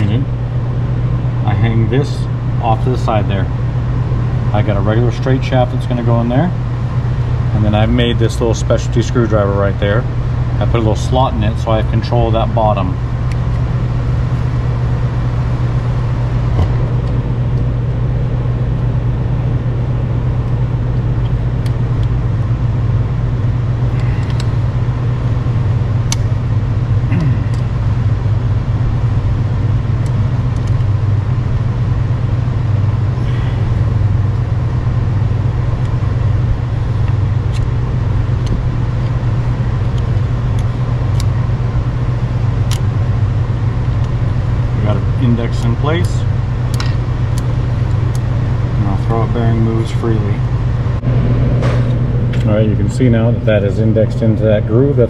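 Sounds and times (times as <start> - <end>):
low mechanical hum: 0.0 - 55.0.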